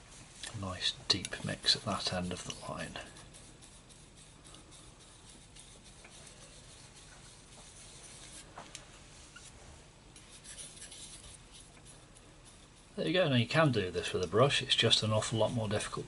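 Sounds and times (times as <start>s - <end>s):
palette knife scraping paint: 1.2s - 8.5s, 9.2s - 9.6s, 10.2s - 16.0s.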